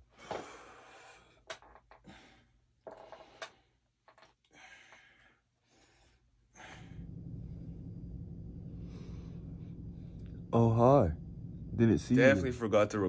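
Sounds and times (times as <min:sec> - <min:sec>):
man breathing: 0:00.0 - 0:10.5
steady low hum: 0:05.8 - 0:13.0.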